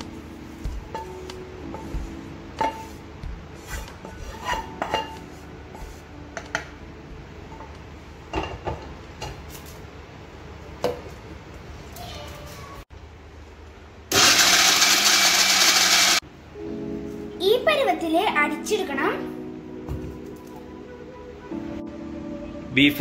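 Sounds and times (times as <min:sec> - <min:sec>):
spatula scraping a pan: 0:03.7 - 0:05.9.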